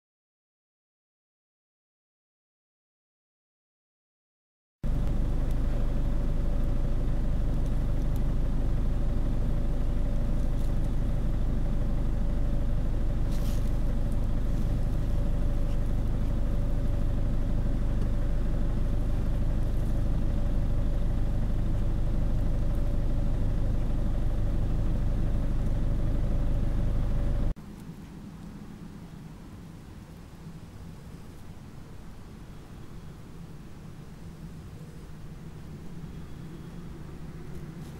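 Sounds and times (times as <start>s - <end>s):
vehicle engine running: 4.8s - 27.6s, 35.0s - 37.9s.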